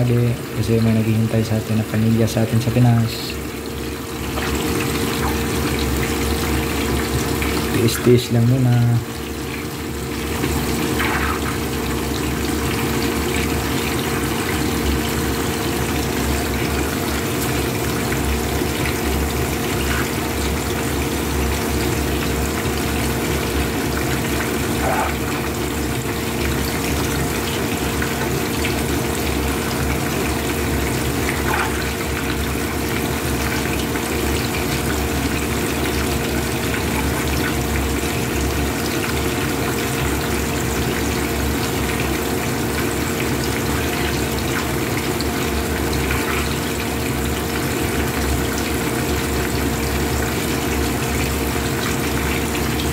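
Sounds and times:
steady low hum: 0.0s - 34.5s
fish sizzling in oil: 3.4s - 7.7s, 9.1s - 52.9s.

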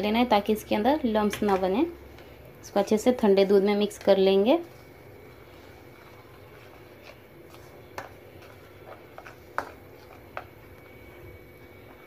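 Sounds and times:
spoon scraping in plastic bowl: 3.9s - 10.7s.

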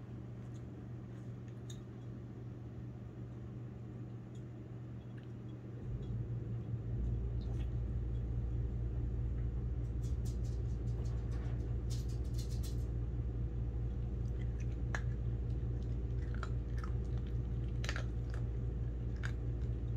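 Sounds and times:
steady low hum: 0.0s - 19.9s
dog crunching dog food: 10.0s - 12.9s, 13.9s - 19.9s.

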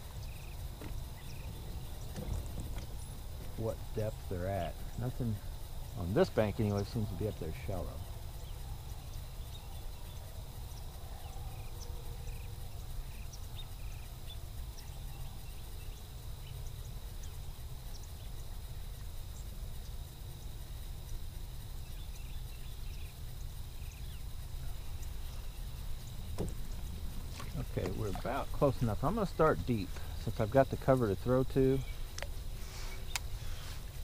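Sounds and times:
trolling motor rumble and whine: 0.0s - 8.6s, 24.2s - 33.5s
light ticks: 33.1s - 33.3s.

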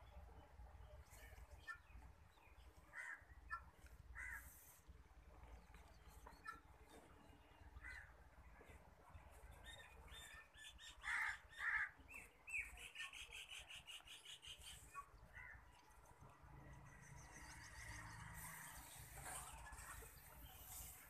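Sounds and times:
crow cawing: 2.9s - 3.2s, 4.2s - 4.5s, 11.0s - 11.9s.

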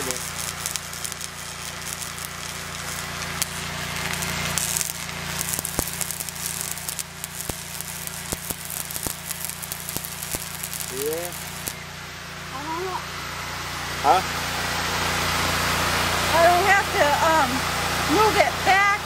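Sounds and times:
sharp pops: 0.0s - 11.8s
low hum: 0.0s - 19.0s
welding arc crackling: 0.0s - 19.0s.

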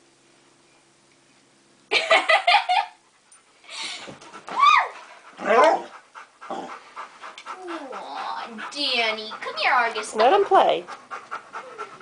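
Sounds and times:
dog whining yelps: 4.5s - 5.6s.

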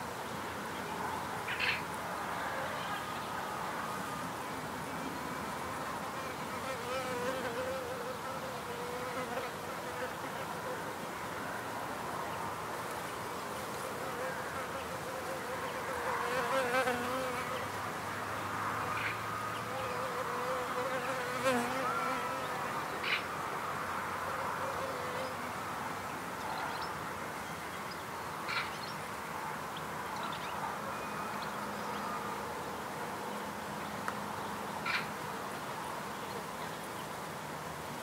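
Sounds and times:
bees buzzing: 19.6s - 22.8s.

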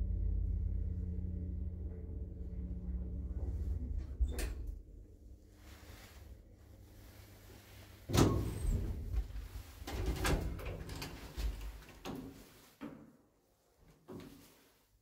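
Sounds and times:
lift humming: 0.0s - 12.0s
lift doors knocking and rattling: 8.1s - 12.4s.

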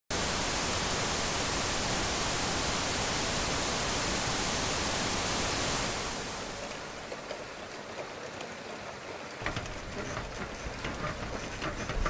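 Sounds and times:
static hiss: 0.1s - 7.6s.

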